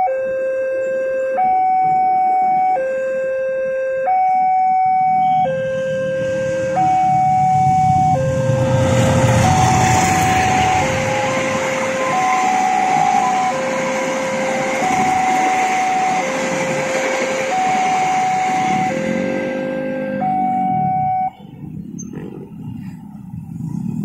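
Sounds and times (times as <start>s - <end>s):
railroad crossing alarm two tones: 0.0s - 21.4s
locomotive rumble: 5.2s - 24.0s
passenger train rolling past: 5.6s - 19.8s.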